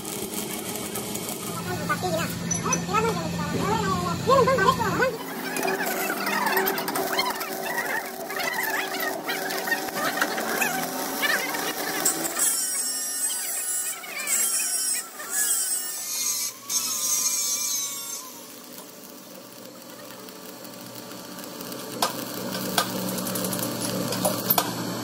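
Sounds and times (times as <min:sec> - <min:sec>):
welding arc crackling: 0:00.0 - 0:25.0.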